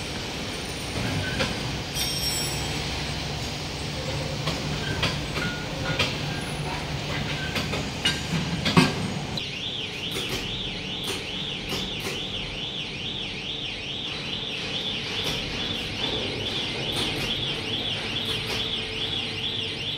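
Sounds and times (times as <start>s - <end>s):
workshop hum: 0.0s - 19.9s
warbling electronic warning alarm: 9.4s - 19.9s.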